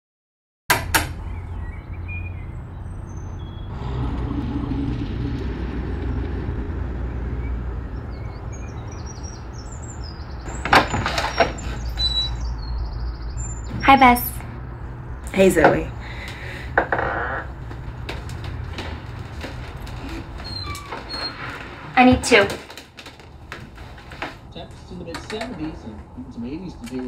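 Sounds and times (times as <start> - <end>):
traffic rumble: 0.7 - 27.0
high chirps: 7.3 - 14.6
door opening clatter: 10.4 - 12.4, 16.8 - 24.5.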